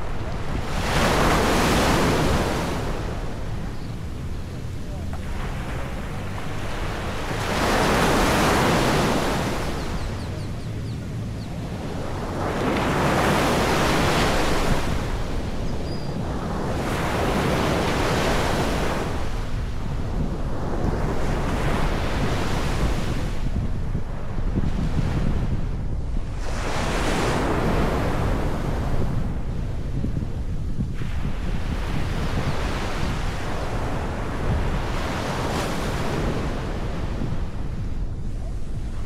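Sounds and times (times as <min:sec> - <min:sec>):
wind buffeting microphone: 0:00.0 - 0:39.0
sea waves washing onto beach: 0:04.7 - 0:10.7.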